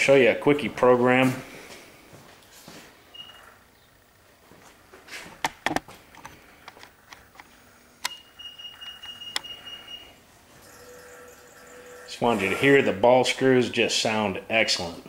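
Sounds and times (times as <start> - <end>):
sharp clicks and knocks: 5.4 - 8.2
milling machine drive whining: 6.2 - 14.5.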